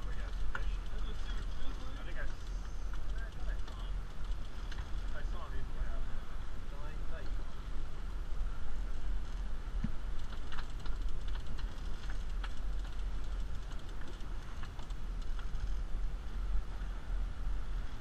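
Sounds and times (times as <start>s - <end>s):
fishing reel clicking: 0.0s - 5.4s, 10.1s - 15.7s.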